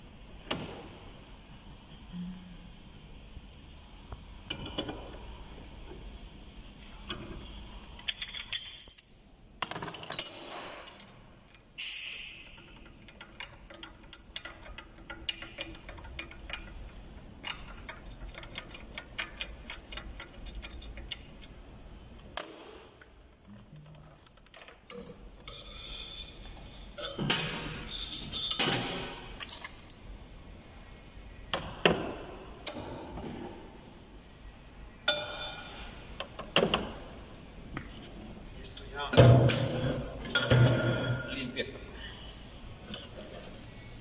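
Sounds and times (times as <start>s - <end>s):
metal parts clinking: 29.4s - 30.0s.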